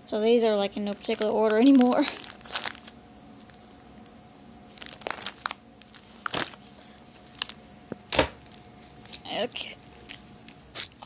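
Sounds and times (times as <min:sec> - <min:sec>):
plastic sleeves crinkling: 0:01.0 - 0:04.0, 0:04.7 - 0:07.6.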